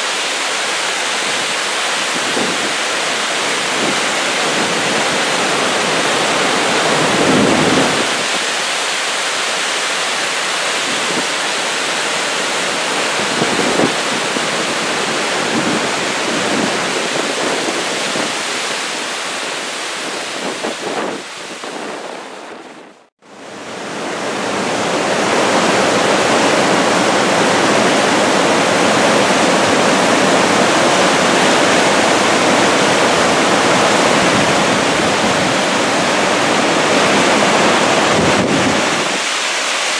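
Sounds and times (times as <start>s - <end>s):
floodwater rushing: 0.0s - 39.9s.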